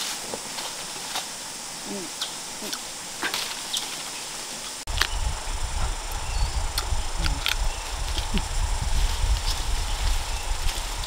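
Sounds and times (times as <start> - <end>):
steady high hiss: 0.0 - 11.0
branches and leaves snapping: 2.2 - 5.2, 6.1 - 11.0
low rumble: 4.9 - 11.0.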